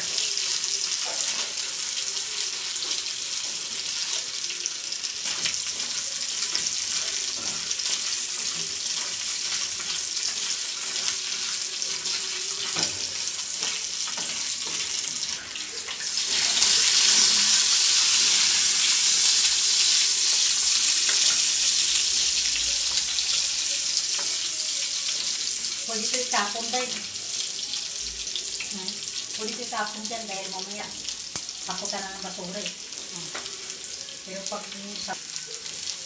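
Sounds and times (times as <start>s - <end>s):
spatula stirring in pan: 0.0s - 25.8s
meat sizzling in frying pan: 0.0s - 36.0s.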